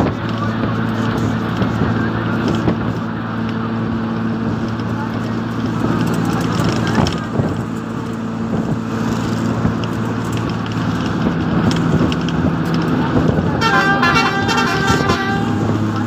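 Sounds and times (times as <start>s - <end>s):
engine droning: 0.0s - 16.0s
horn sounding: 13.6s - 16.0s.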